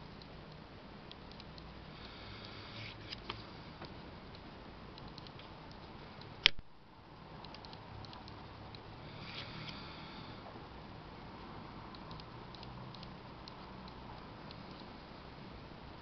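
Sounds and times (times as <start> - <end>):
light clicks: 2.4 - 6.7, 11.9 - 14.9.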